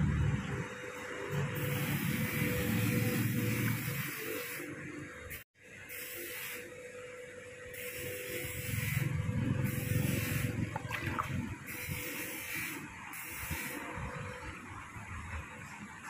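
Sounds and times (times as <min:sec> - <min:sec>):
water splashing and sloshing: 0:10.5 - 0:11.7.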